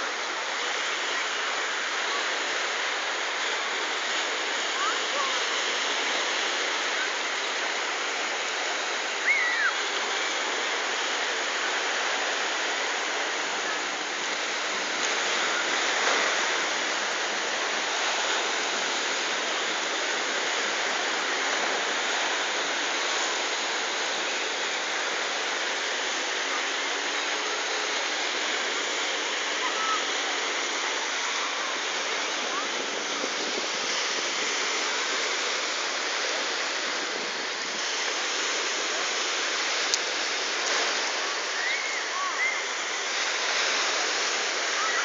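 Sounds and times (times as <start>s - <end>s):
surf washing over pebbles: 0.0s - 45.0s
brief high cry: 9.2s - 9.8s.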